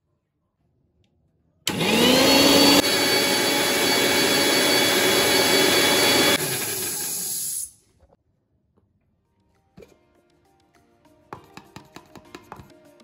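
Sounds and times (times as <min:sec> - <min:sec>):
electric mixer grinder running: 0:01.7 - 0:07.6.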